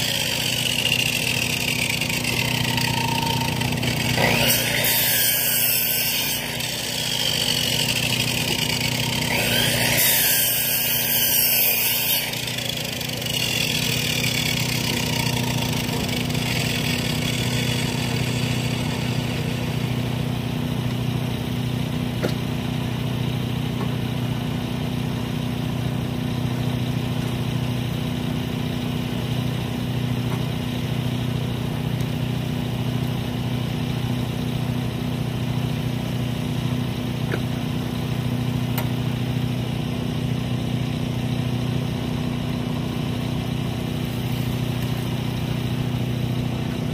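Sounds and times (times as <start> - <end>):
small petrol engine idling: 0.0 - 4.4, 6.5 - 9.7, 12.3 - 46.9
high saw whine: 0.0 - 21.8.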